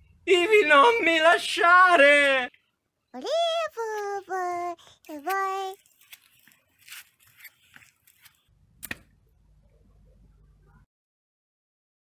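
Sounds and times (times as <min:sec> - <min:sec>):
crackling and rustling: 0:03.8 - 0:09.1
sharp click: 0:08.8 - 0:09.1.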